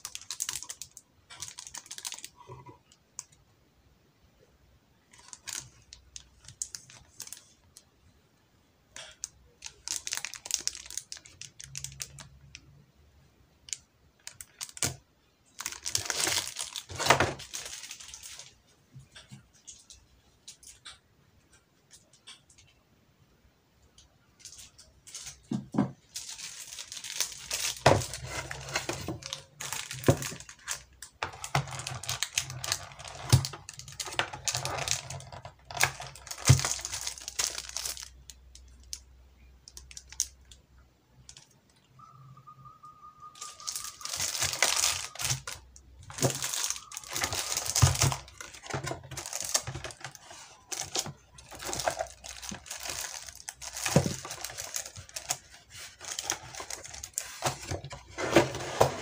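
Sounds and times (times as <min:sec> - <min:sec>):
plastic bags crinkling: 0:00.0 - 0:02.6, 0:05.1 - 0:07.8, 0:09.0 - 0:12.5, 0:13.7 - 0:18.6, 0:24.4 - 0:39.0, 0:43.4 - 0:59.0
cardboard packaging handled: 0:15.6 - 0:18.5, 0:25.1 - 0:38.1, 0:43.4 - 0:59.0
brief steady tone: 0:42.0 - 0:44.0.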